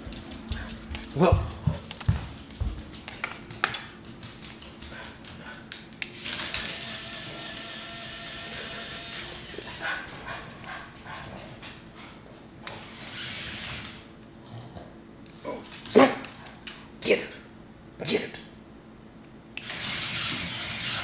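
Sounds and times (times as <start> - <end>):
dog claws on hardwood floor: 0.0 - 6.7
toy motor whirring: 6.2 - 9.8, 12.8 - 14.0, 19.6 - 21.0.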